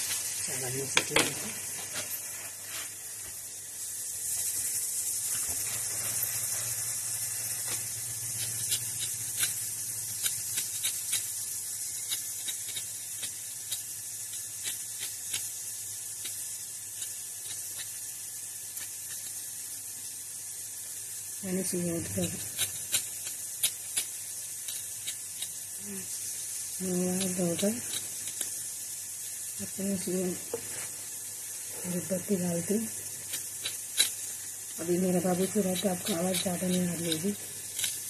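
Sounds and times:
steady high hiss: 0.0 - 38.0
knife clicking and scraping vegetables: 7.6 - 18.1, 18.8 - 19.4, 22.0 - 25.6, 27.0 - 28.6, 33.1 - 38.0.

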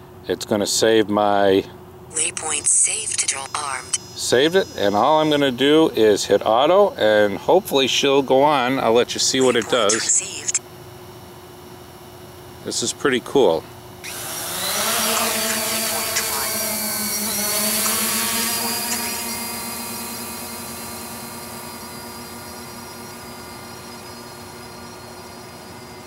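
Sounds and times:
drone motors buzzing: 14.0 - 25.6.

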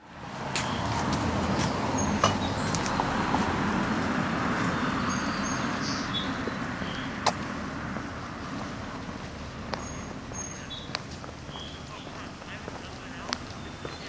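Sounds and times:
high bird chirps: 9.8 - 10.9, 11.5 - 12.2, 13.4 - 14.0.

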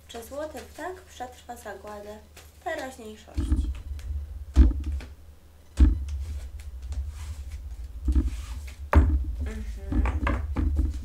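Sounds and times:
cards rustling: 0.1 - 4.1
dull knocks on desk: 8.9 - 9.2.

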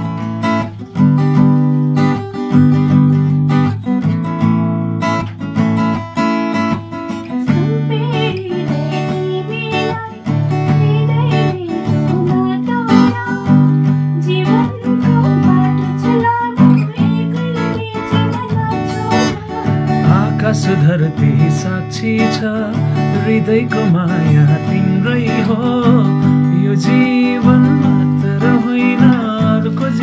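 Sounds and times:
acoustic guitar strumming chords: 0.0 - 30.0
man singing: 19.8 - 30.0.

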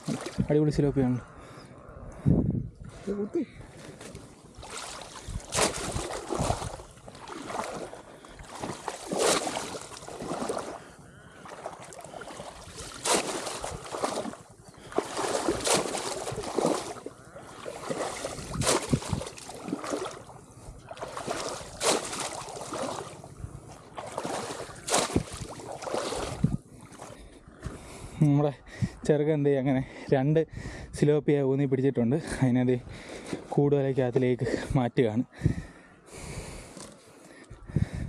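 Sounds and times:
splashing of shallow water: 0.0 - 0.5, 3.7 - 27.2.

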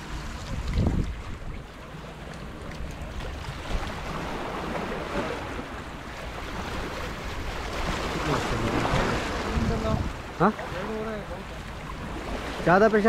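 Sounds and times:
wind rumbling on microphone: 0.0 - 12.7
waves washing on rocks: 3.2 - 13.0.

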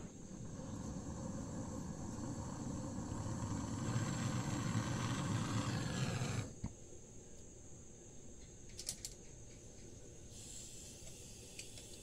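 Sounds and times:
torch flame rushing: 0.0 - 6.6.

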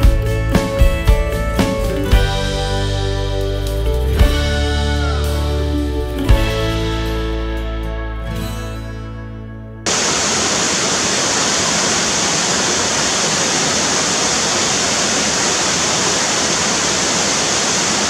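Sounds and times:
music track: 0.0 - 9.8
flowing water rushing: 9.9 - 18.0.

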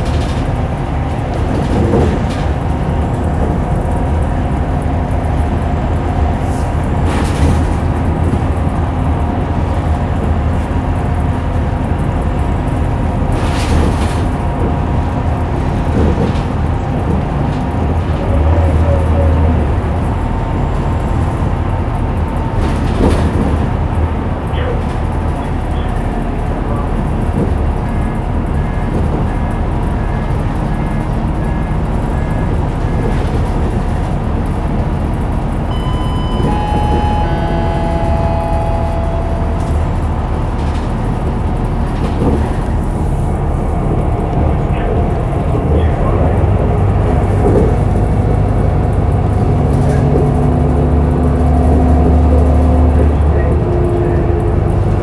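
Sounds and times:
bus engine drone: 0.0 - 55.0
driveline whine: 35.6 - 41.7
short regular beeps: 35.7 - 40.0.

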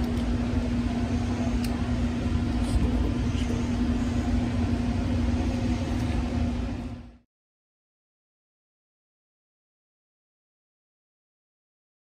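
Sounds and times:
machine rumbling and humming: 0.0 - 7.3.

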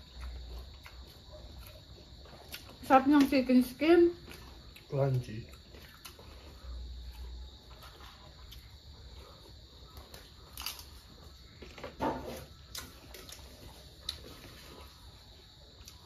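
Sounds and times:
chewing crunchy fried chicken: 0.0 - 16.0.

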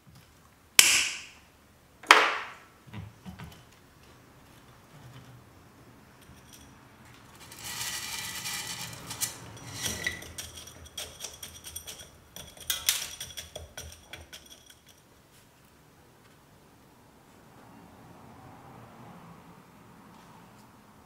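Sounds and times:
soil grains rattling off metal scoop: 7.3 - 13.8.

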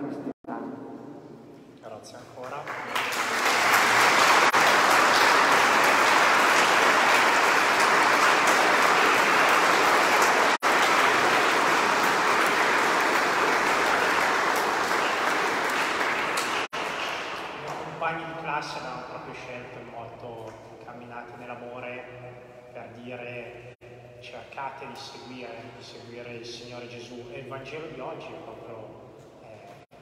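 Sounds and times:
congregation applauding: 2.4 - 19.0.

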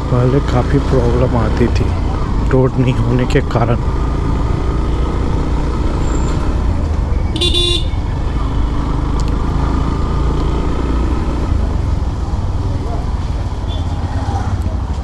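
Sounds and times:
motorcycle engine running: 0.0 - 14.9
horn toot: 7.4 - 8.0.

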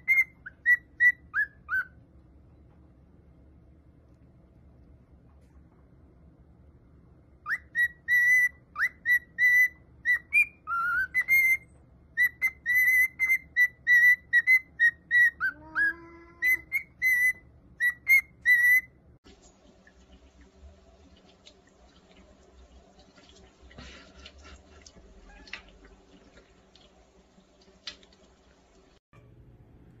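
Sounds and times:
cockatiel whistling: 0.0 - 2.0, 7.4 - 19.0.

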